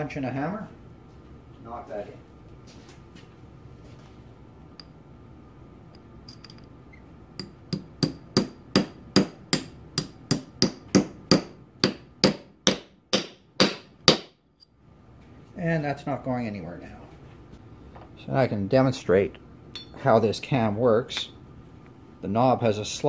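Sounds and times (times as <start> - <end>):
hammer tapping metal punch: 7.4 - 14.4.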